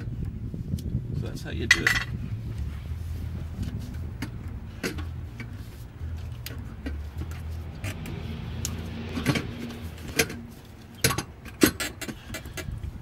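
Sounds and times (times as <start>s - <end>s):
metal parts clicking and knocking: 1.7s - 2.2s.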